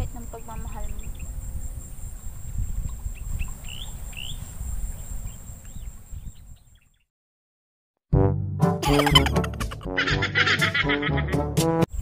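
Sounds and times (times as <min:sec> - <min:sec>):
wind rumble on microphone: 0:00.0 - 0:07.0
bird chirps: 0:00.4 - 0:01.4, 0:02.8 - 0:07.1.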